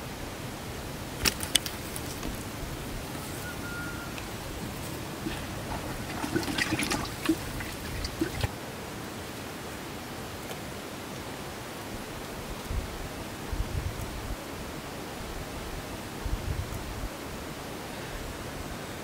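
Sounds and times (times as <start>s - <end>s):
steady background hiss: 0.0s - 19.0s
water splashing and sloshing: 4.2s - 8.6s.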